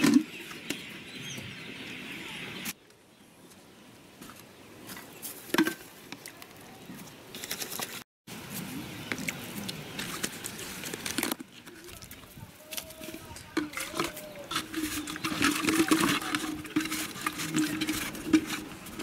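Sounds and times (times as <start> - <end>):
plastic containers clicking and knocking: 13.5 - 19.0.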